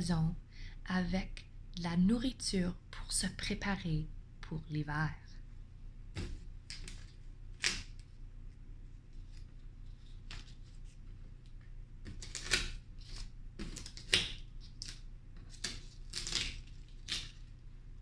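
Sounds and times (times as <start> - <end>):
paper rustling: 9.1 - 17.6.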